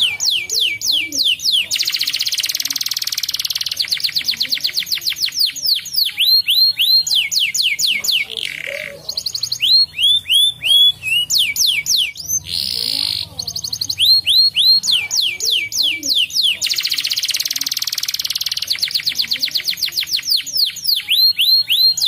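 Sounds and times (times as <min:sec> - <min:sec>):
canary singing: 0:00.0 - 0:22.0.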